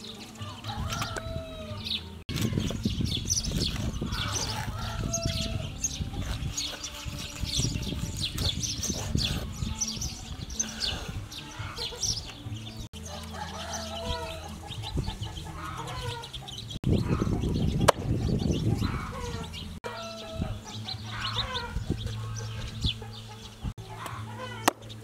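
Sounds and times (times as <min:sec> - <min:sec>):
small birds chirping: 0:00.0 - 0:25.0
cleaver chopping ribs on wood: 0:24.0 - 0:24.9.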